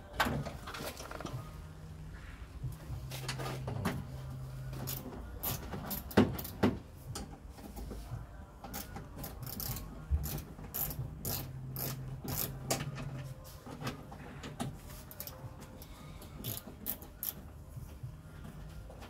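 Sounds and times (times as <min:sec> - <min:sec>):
socket ratchet clicking: 0:08.7 - 0:12.8, 0:16.4 - 0:17.4.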